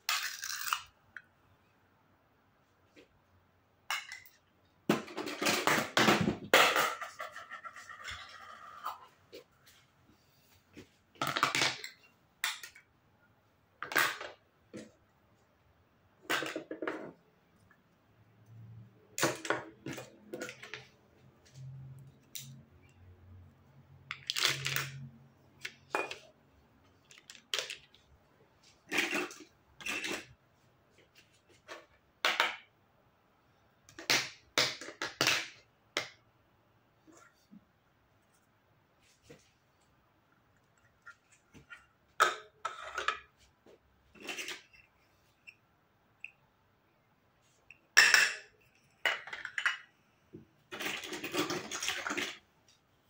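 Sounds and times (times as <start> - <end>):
plastic toys clacking on table: 27.0 - 28.0.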